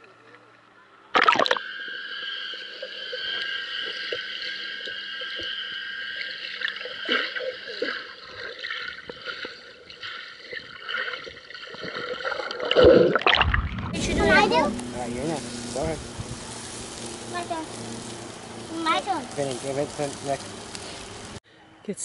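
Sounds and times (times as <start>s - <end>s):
bubbling and crackles: 0.5s - 21.4s
steady high whine: 13.6s - 22.0s.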